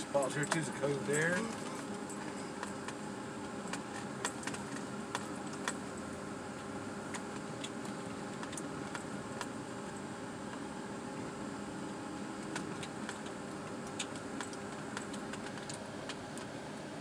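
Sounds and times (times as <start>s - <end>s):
vehicle cabin running noise: 0.0s - 17.0s
light clicks and rattles: 0.2s - 3.0s.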